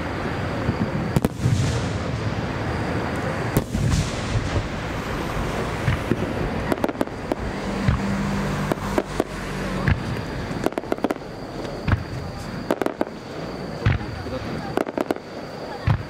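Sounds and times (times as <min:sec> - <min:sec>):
firework shells bursting: 0:03.2 - 0:13.2.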